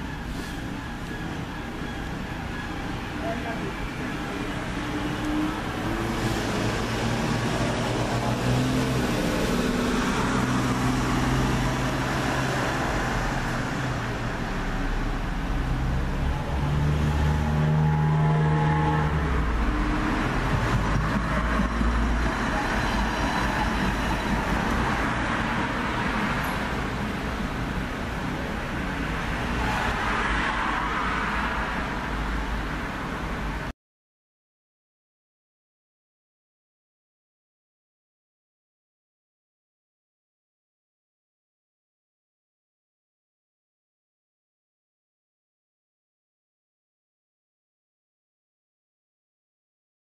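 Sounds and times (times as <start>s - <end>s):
road traffic engine noise: 0.0s - 33.7s.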